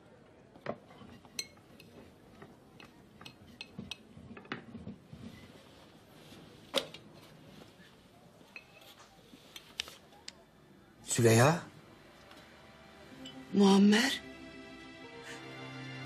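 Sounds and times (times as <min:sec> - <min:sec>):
dishes and cutlery clinking: 0:00.6 - 0:05.5, 0:08.4 - 0:09.7.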